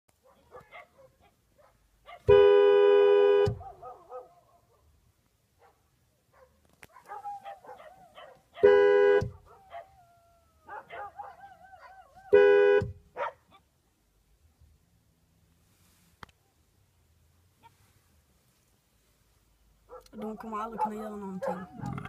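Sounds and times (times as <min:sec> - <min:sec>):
dogs barking: 0:00.2 - 0:02.3, 0:03.5 - 0:04.9, 0:05.6 - 0:12.4, 0:13.1 - 0:13.7, 0:19.9 - 0:22.0
car horn blaring: 0:02.3 - 0:03.6, 0:08.6 - 0:09.4, 0:12.3 - 0:13.0.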